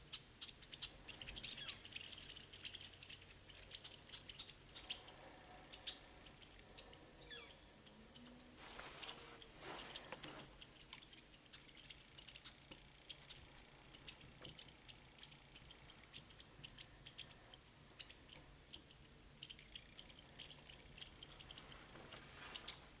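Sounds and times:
faint small ticks and clicks: 7.6s - 23.0s.

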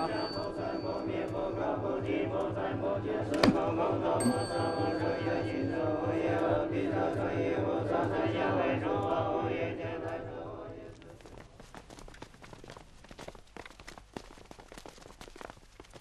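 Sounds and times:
men chanting in unison: 0.0s - 11.0s
steady low pulse: 0.0s - 11.0s.

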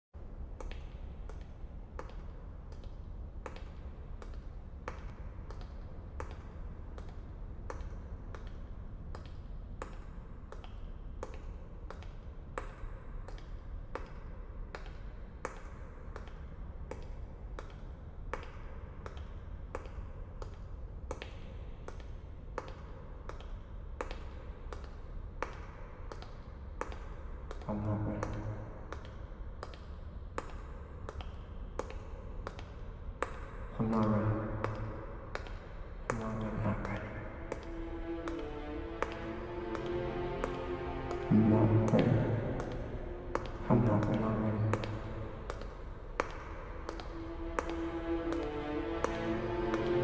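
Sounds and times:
steady low rumble: 26.6s - 50.0s
hard-soled footsteps on stone: 34.6s - 50.0s.

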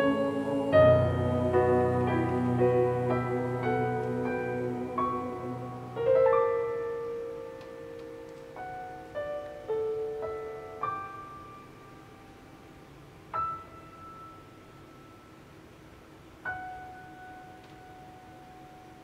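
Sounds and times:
choir holding a chord: 0.0s - 7.1s
keyboard piano notes: 0.0s - 12.4s.

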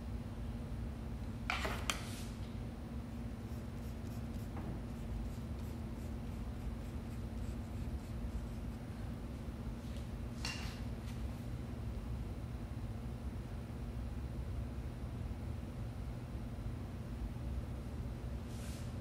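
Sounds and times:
steady low hum: 0.0s - 19.0s
paintbrush brushing on paper: 3.3s - 9.1s.

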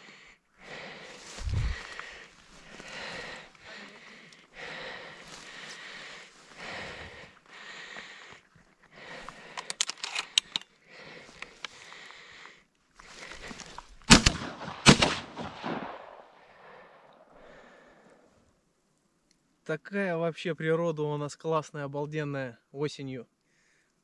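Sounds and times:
sharp clicks and crackles: 9.4s - 10.7s, 11.4s - 11.8s
shotgun shots: 14.1s - 16.3s.

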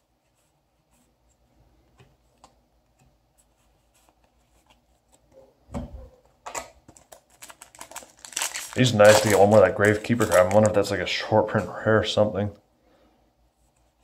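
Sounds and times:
foil pack crinkling: 6.9s - 11.1s.

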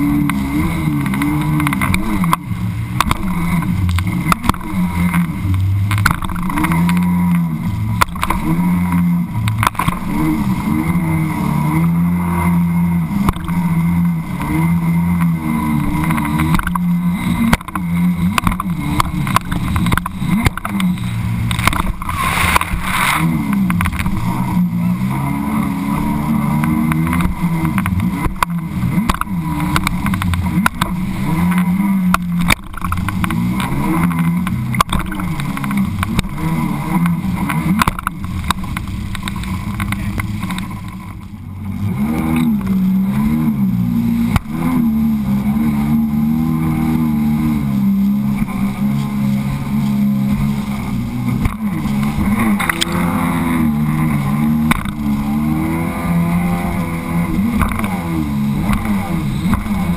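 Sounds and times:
watercraft engine running: 0.0s - 59.9s
hull knocking and splashing: 0.2s - 10.7s, 13.1s - 25.7s, 26.3s - 43.0s.

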